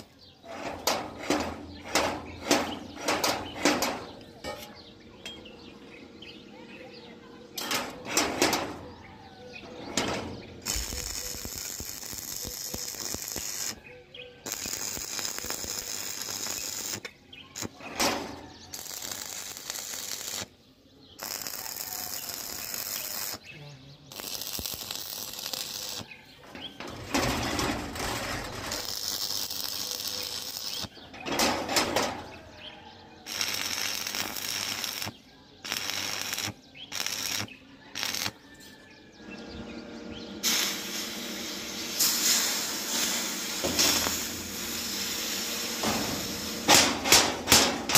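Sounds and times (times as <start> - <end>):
welding arc crackling and hissing: 0.0 - 4.1, 9.9 - 20.5, 21.2 - 23.5, 24.1 - 32.3, 33.2 - 38.4, 40.4 - 47.9.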